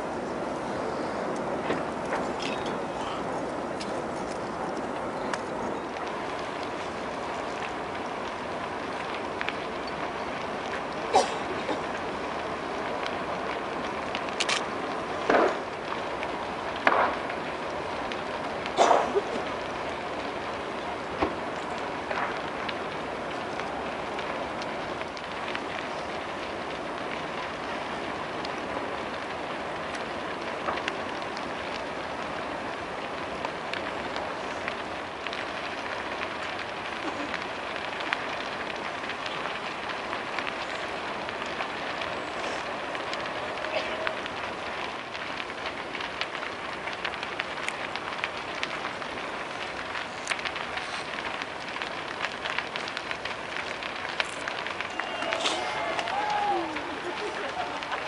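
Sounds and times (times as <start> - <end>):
fire crackling and popping: 0.0 - 58.0
roar of flames: 0.0 - 58.0.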